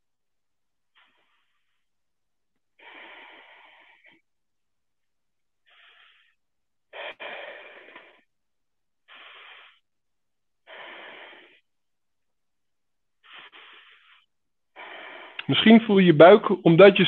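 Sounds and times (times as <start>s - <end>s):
person breathing deeply: 1.0s - 1.9s, 2.8s - 4.3s, 5.6s - 8.3s, 9.0s - 9.9s, 10.6s - 11.7s, 13.2s - 15.8s.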